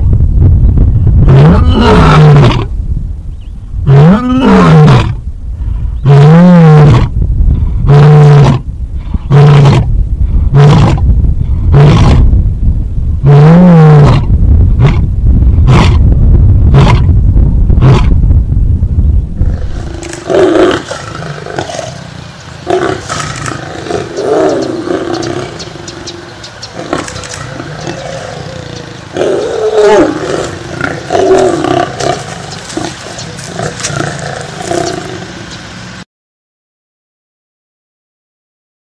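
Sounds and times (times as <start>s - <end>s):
lion growling calls: 1.2s - 2.7s, 19.4s - 35.6s
lion roaring: 1.2s - 2.7s, 3.8s - 5.2s, 6.0s - 7.1s, 11.7s - 12.3s, 13.2s - 16.0s, 19.4s - 35.4s.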